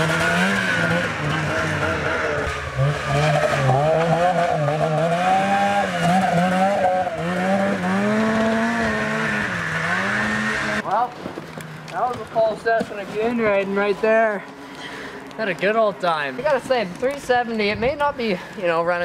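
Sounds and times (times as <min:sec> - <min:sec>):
snowmobile engine revving: 0:00.0 - 0:14.4.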